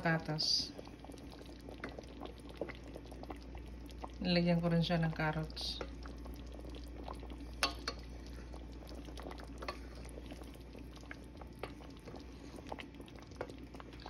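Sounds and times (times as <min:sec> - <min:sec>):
stew bubbling in a pot: 0:00.0 - 0:14.0.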